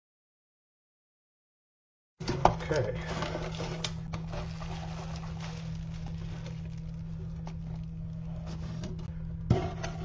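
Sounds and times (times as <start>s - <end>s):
steady low hum: 2.2s - 10.0s
bubble wrap crinkling: 2.7s - 8.9s.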